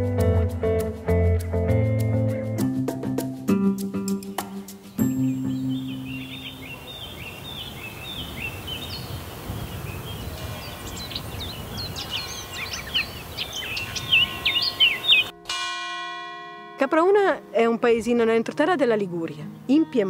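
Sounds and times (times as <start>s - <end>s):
outdoor background hiss: 3.8s - 20.0s
birds chirping and whistling: 4.9s - 15.3s
church bell ringing: 13.6s - 18.5s.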